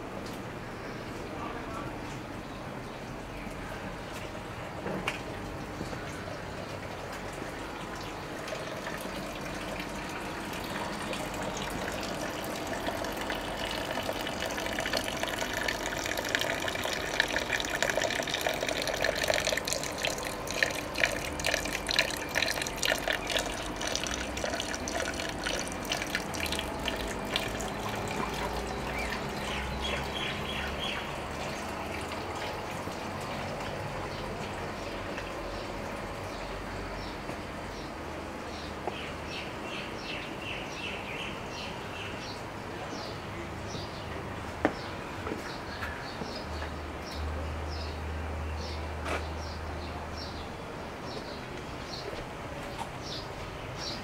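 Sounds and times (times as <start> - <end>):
water splashing and gushing: 7.2 - 36.2.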